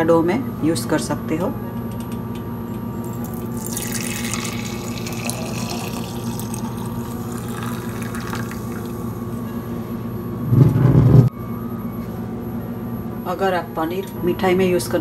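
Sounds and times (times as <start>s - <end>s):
steady low hum: 0.0s - 15.0s
liquid pouring into glass jar: 3.1s - 9.0s.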